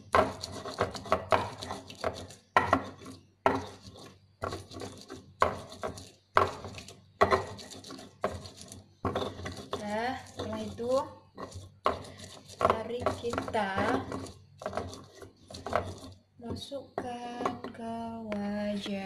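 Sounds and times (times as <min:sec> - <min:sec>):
stone pestle grinding in mortar: 0:00.0 - 0:19.0.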